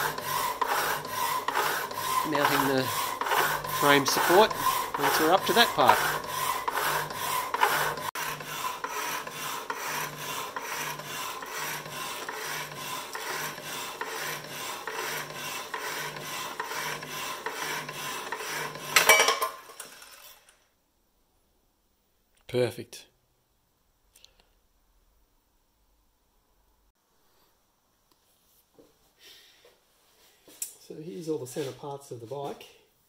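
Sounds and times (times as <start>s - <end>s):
power hacksaw cutting metal bar: 0.0s - 20.6s.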